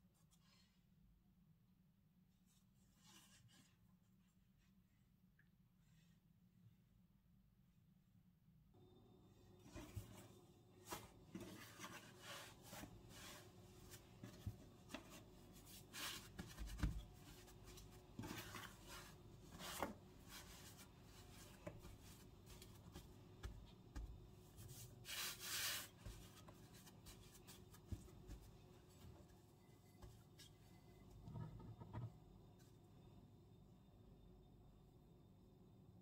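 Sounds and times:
soft rubbing and scraping: 24.4s - 32.8s.

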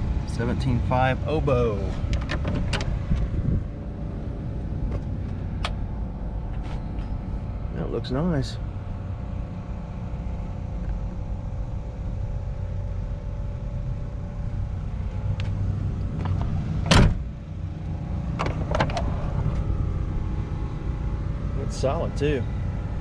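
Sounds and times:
steady low rumble: 0.0s - 23.0s
loud thump: 16.8s - 17.3s.

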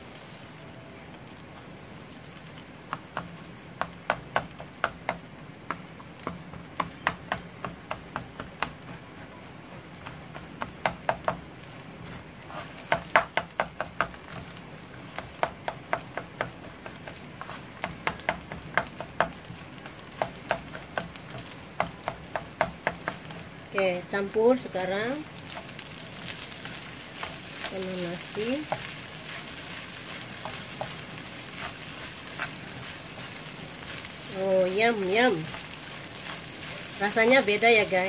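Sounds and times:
spatula scraping frying pan: 12.0s - 13.1s, 25.4s - 37.9s.

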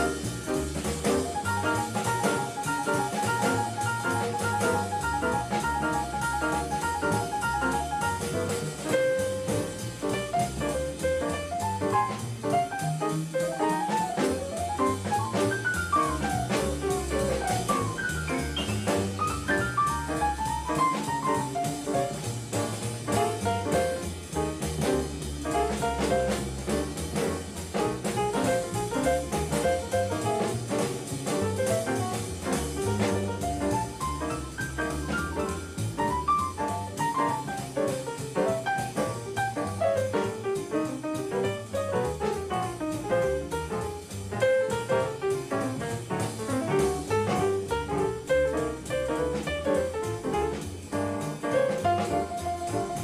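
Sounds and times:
double bass: 0.0s - 53.0s
drum kit: 0.0s - 53.0s
piano: 0.0s - 53.0s
jazz saxophone solo: 50.0s - 53.0s.

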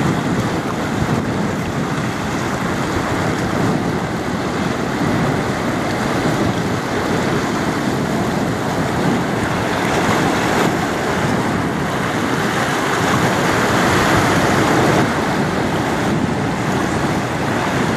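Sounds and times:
rushing propeller wash: 0.0s - 17.9s
wind on microphone: 0.0s - 17.9s.

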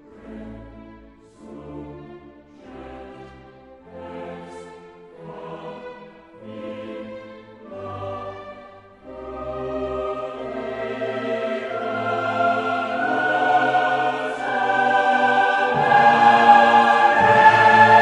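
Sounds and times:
choir singing long held notes: 0.0s - 18.0s.

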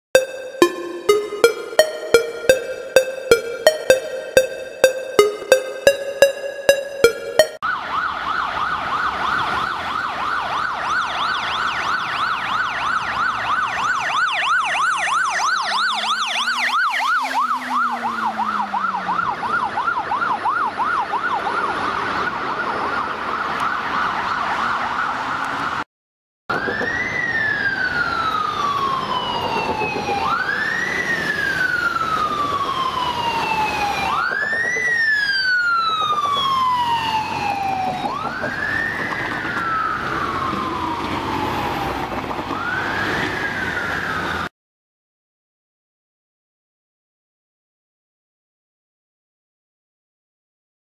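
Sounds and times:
wailing siren: 0.2s - 25.8s, 26.5s - 44.5s
warbling siren yelp: 12.6s - 22.5s, 26.6s - 44.4s.

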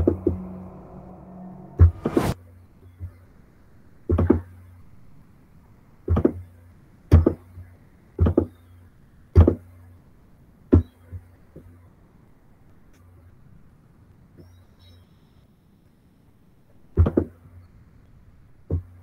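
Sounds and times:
brief low hum: 0.0s - 2.4s
heavy percussive hits: 0.0s - 2.4s.

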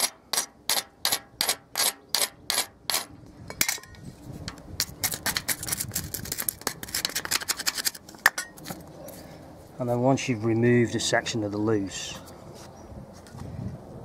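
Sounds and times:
metal scraper scraping rust: 0.0s - 8.6s.

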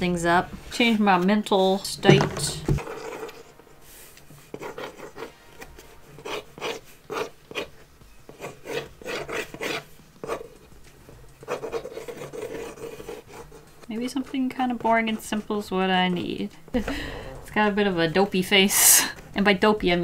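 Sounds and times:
pencil scratching on cardboard: 2.8s - 3.6s, 4.3s - 5.4s, 6.2s - 10.7s, 11.4s - 16.4s.

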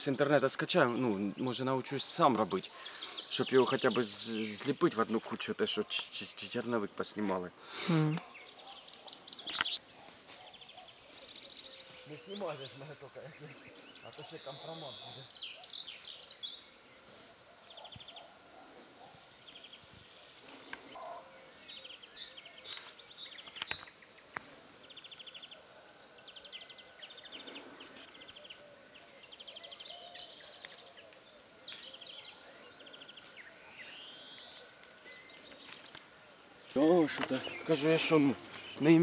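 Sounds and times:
small birds trilling and chirping: 0.0s - 39.0s.

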